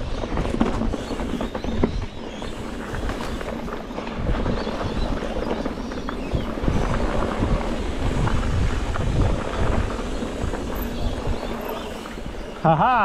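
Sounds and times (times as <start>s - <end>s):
wind buffeting the microphone: 0.0s - 13.0s.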